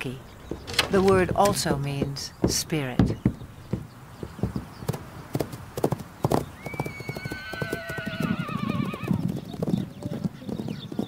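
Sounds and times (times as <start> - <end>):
horse hooves clopping: 0.0 - 11.0
horse whinnying: 6.6 - 9.2.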